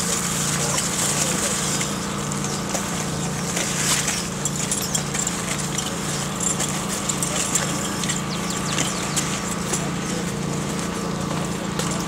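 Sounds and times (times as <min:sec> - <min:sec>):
small engine humming: 0:00.0 - 0:12.0
diving gear clicking and rattling: 0:03.5 - 0:10.0.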